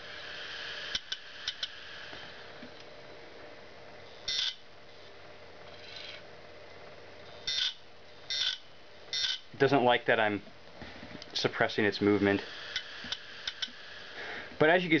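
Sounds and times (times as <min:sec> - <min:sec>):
hard drive platter whirring: 0:00.0 - 0:09.7, 0:10.6 - 0:15.0
sharp hard drive head clicks: 0:12.8 - 0:13.8.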